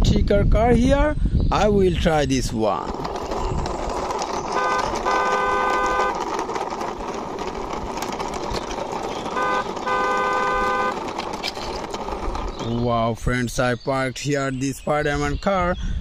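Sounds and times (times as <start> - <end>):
toy car wheels whirring: 1.9 - 13.6
toy car horn beeping: 3.4 - 12.5.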